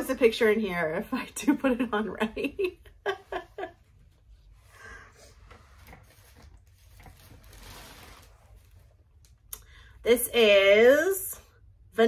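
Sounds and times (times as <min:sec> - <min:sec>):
clothing rustling: 0:03.6 - 0:09.5.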